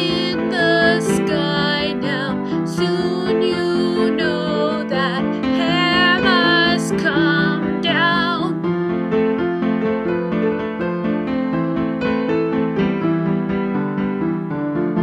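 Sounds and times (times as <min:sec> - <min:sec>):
woman singing with vibrato: 0:00.0 - 0:08.6
instrumental accompaniment: 0:00.0 - 0:15.0.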